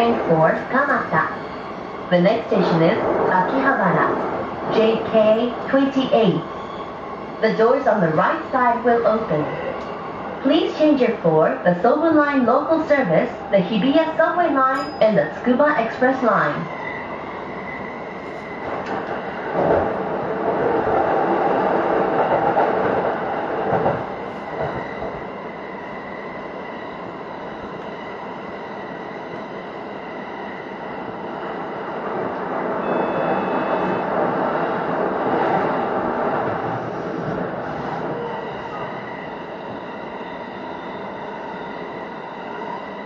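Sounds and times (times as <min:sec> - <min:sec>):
train wheels rumbling on rail: 0:18.2 - 0:25.9, 0:28.6 - 0:43.0.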